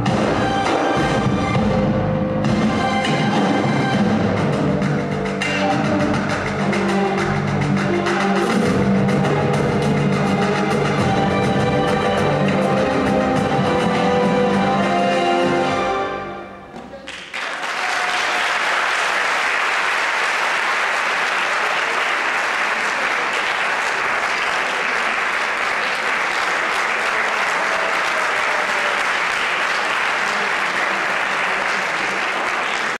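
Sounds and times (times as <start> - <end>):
tango music: 0.0 - 17.1
audience applause: 16.8 - 32.9.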